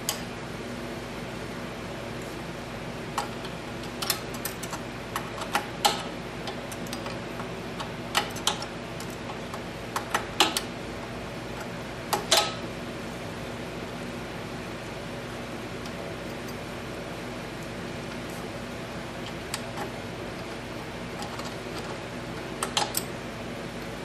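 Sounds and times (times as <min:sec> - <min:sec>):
low shop hum: 0:00.0 - 0:24.0.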